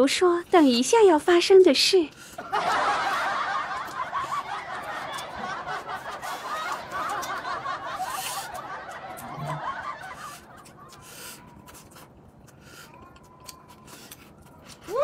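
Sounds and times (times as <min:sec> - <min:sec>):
canned laughter: 0:02.4 - 0:11.1.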